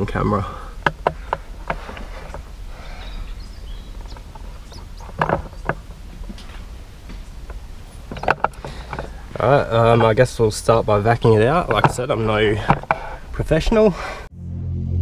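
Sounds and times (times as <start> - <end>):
faint bird chirps: 2.6 - 5.7
low steady rumble: 14.3 - 15.0.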